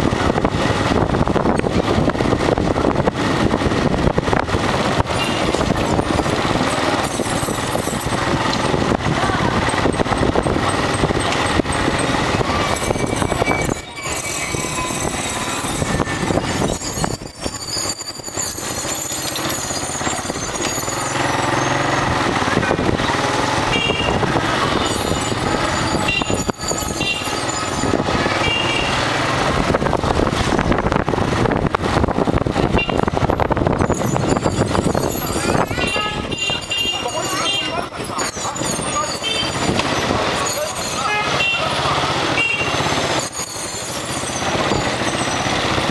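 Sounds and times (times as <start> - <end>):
motorcycle engine running: 0.0 - 45.9
street traffic: 0.0 - 45.9.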